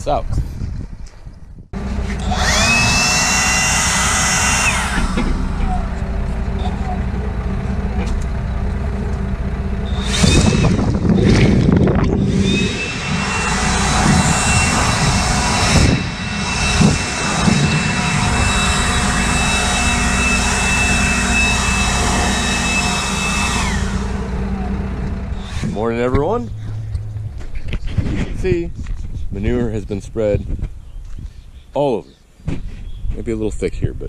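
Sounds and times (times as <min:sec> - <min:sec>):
low engine hum: 0:01.7 - 0:31.1
leaf blower blasting: 0:01.8 - 0:27.5.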